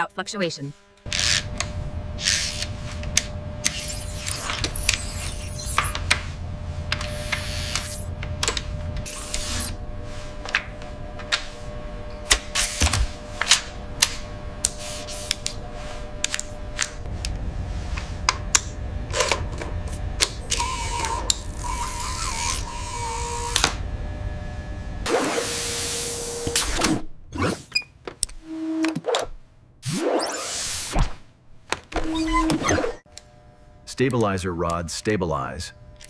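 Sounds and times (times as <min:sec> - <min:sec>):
low steady hum: 0:00.0 - 0:25.1, 0:32.1 - 0:36.0
small motor whining: 0:00.8 - 0:06.1, 0:07.0 - 0:08.4, 0:09.0 - 0:09.8, 0:20.3 - 0:23.8
loud whirr: 0:00.8 - 0:27.0.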